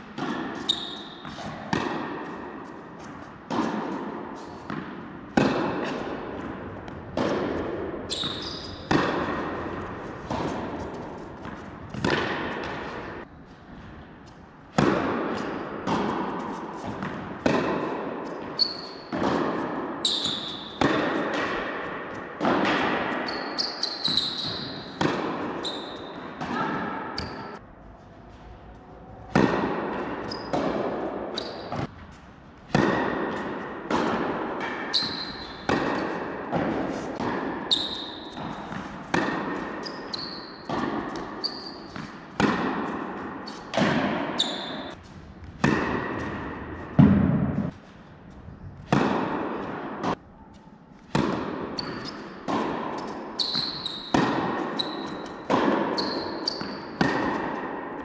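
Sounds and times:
tennis ball bouncing: 0.0 - 13.3, 14.2 - 27.6, 29.3 - 47.8, 48.8 - 58.0
tennis racket strikes: 0.0 - 13.3, 14.7 - 27.6, 29.3 - 32.0, 32.7 - 47.8, 48.9 - 50.2, 51.0 - 58.0
shoes squeaking on court: 0.5 - 1.6, 8.1 - 13.2, 18.2 - 19.4, 20.0 - 20.8, 23.1 - 27.6, 30.2 - 32.2, 34.8 - 42.3, 43.2 - 45.5, 51.7 - 57.5.

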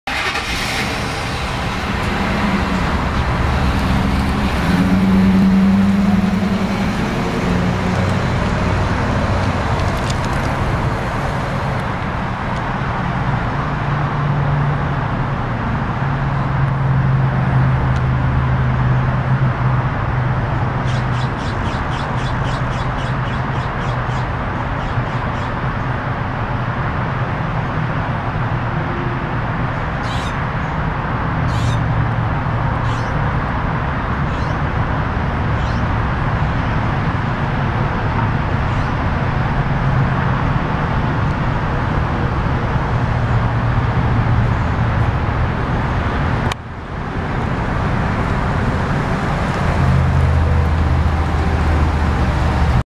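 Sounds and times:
pickup truck engine accelerating: 0.1 - 14.3, 37.1 - 52.8.

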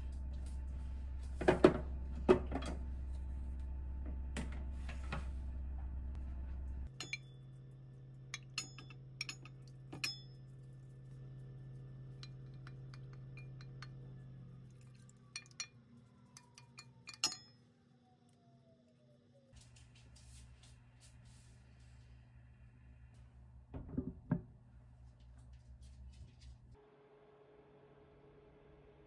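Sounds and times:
low steady hum: 0.0 - 18.7
glass container clinking on pot: 6.9 - 7.4, 8.4 - 10.4, 12.2 - 14.1, 14.8 - 15.8, 16.4 - 17.6.

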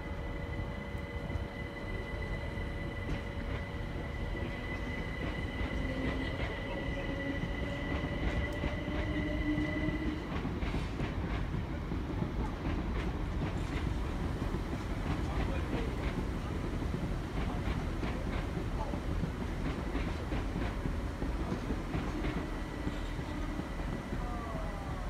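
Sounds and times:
train traction motors whining: 0.0 - 11.1, 13.5 - 25.0
steady train rumble: 0.0 - 25.0
train wheels clattering over rail joints: 7.6 - 24.4.

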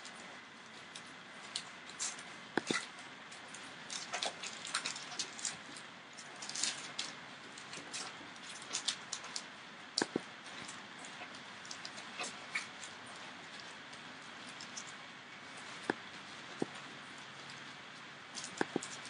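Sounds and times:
puppies clicking and scuffing: 0.0 - 19.0.

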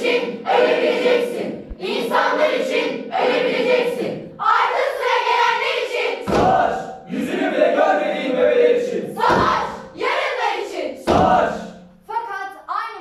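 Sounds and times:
group singing in unison: 0.0 - 11.9
low thuds: 6.2 - 6.8, 9.2 - 10.0, 11.0 - 11.6.

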